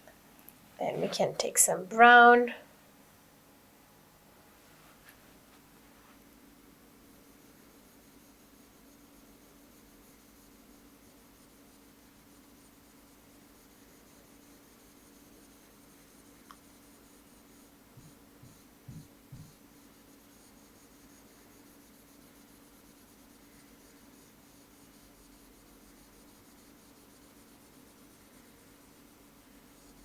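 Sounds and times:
pen scratching on whiteboard: 0:14.4 - 0:30.0.

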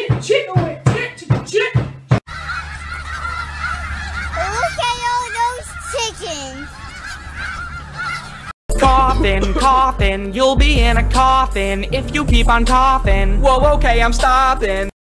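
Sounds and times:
flock of geese honking: 0:02.3 - 0:08.6.

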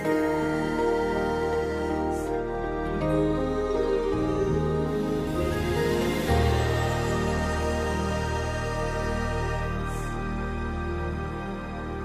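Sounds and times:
music with long held notes: 0:00.0 - 0:12.0.

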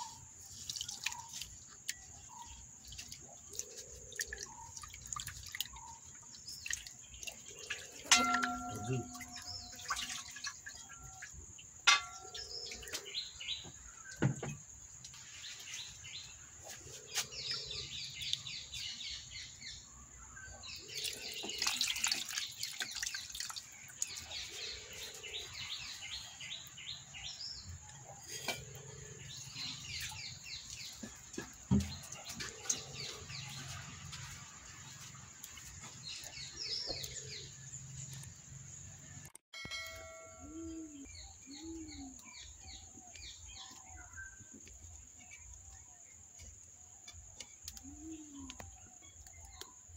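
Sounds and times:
hands splashing water: 0:00.0 - 0:02.2, 0:02.8 - 0:11.2, 0:20.9 - 0:24.4
birds chirping trills: 0:00.0 - 0:49.9
plate clinks: 0:08.1 - 0:09.6, 0:11.9 - 0:12.5.

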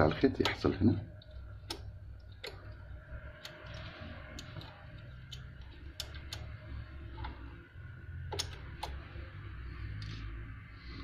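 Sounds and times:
low steady hum: 0:00.0 - 0:11.0
small clicks and taps: 0:01.2 - 0:06.6.

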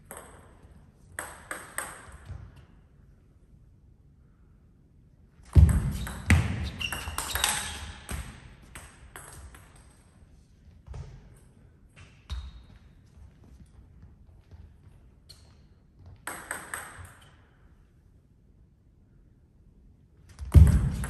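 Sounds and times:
footsteps in a large hall: 0:09.9 - 0:16.3.

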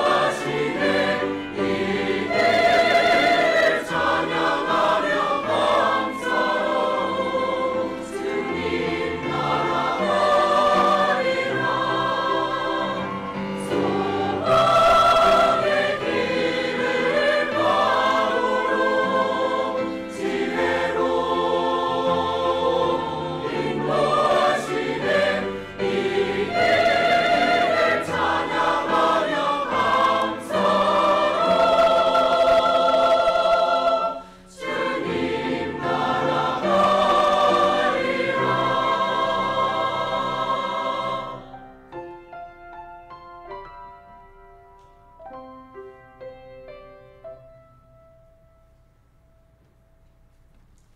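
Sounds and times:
choir singing: 0:00.0 - 0:41.8.

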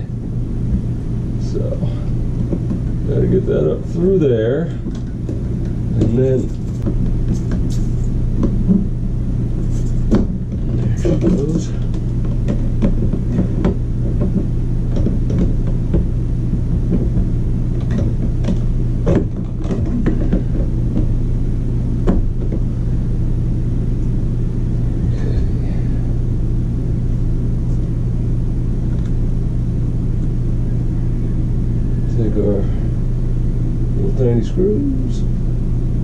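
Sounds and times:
vent parts clicking and knocking: 0:00.0 - 0:23.1
steady low hum: 0:00.0 - 0:36.0.

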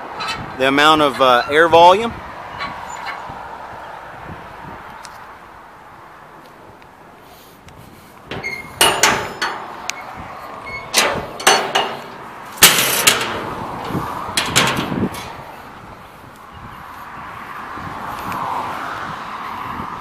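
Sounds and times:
metal lids clanking and banging: 0:08.3 - 0:09.9, 0:10.7 - 0:15.4.

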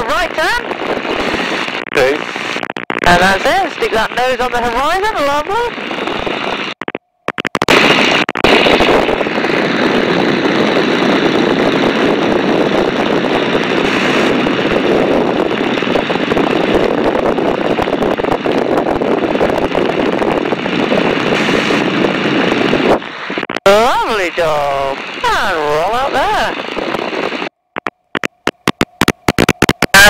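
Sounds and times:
aircraft engine running: 0:00.0 - 0:30.0.

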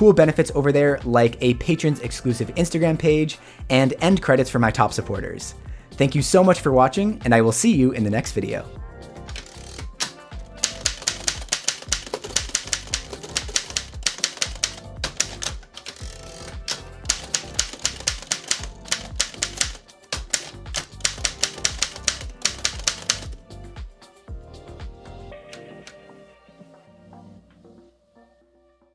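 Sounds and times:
manual typewriter keystrokes: 0:09.3 - 0:23.4.

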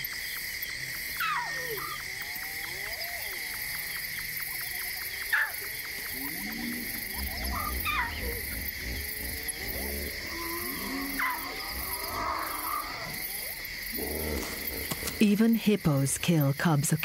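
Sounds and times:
crickets chirping: 0:00.0 - 0:17.0
lion cub calling: 0:05.3 - 0:15.2
low rumble: 0:06.1 - 0:10.7.

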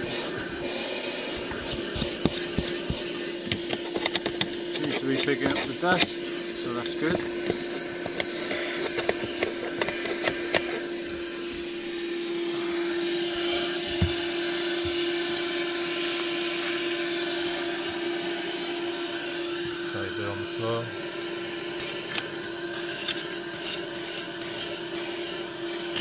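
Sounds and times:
car vacuum cleaner running: 0:00.0 - 0:26.0.

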